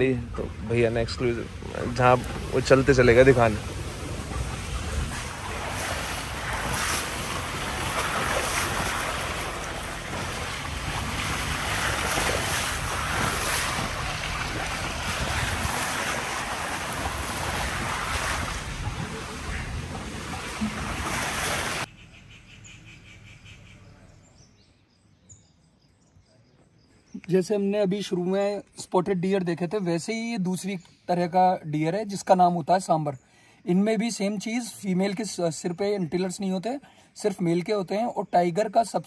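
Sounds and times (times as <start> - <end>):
wind buffeting microphone: 0.0 - 21.9
vehicle low rumble: 0.0 - 24.5.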